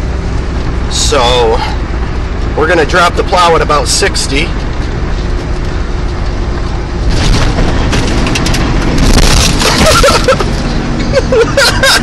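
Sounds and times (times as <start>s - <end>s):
truck engine and road rumble: 0.0s - 12.0s
plow blade crunching snow: 2.5s - 12.0s.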